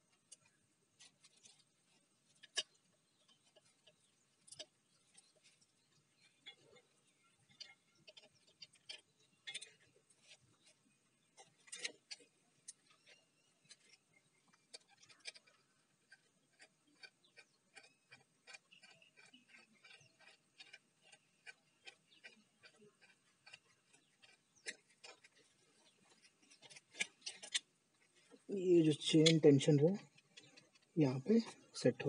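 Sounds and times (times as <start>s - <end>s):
screwdriver turning screw: 11.6s - 27.7s
faint metallic clicks and taps: 29.1s - 31.6s.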